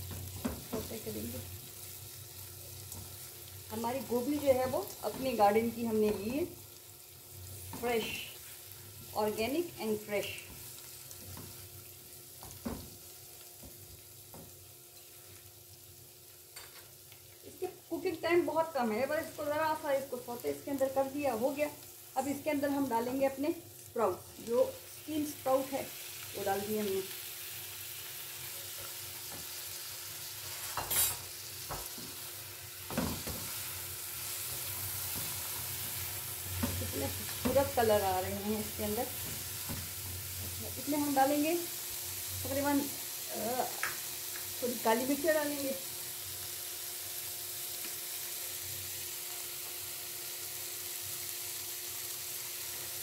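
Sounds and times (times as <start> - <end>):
vegetables sizzling in a wok: 0.0 - 53.0.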